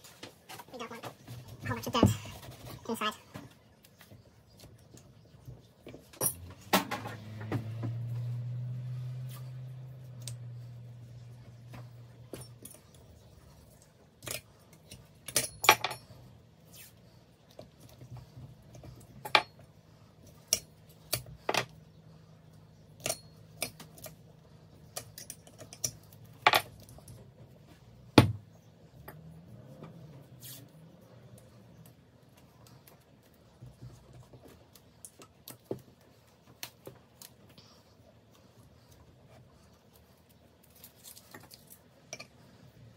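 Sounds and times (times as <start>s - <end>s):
metal parts and tools clinking: 14.2s - 16.2s, 23.0s - 24.2s.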